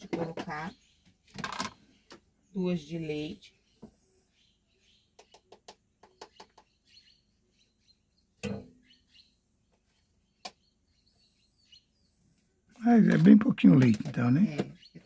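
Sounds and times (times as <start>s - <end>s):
faint bird chirps: 1.8s - 12.8s.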